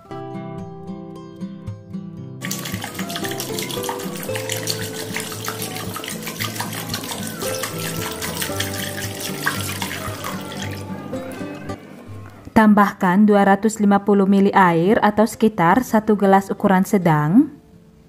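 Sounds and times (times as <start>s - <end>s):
background music: 0.0s - 18.0s
milk pouring into a metal wok: 2.4s - 11.1s.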